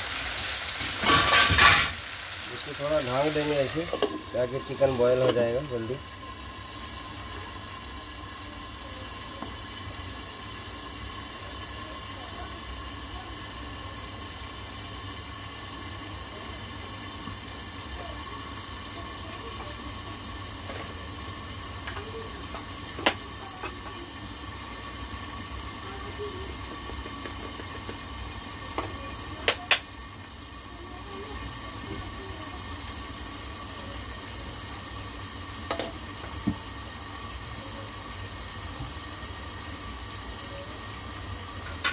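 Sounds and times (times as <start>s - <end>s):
oil hissing and sizzling: 0.0s - 41.9s.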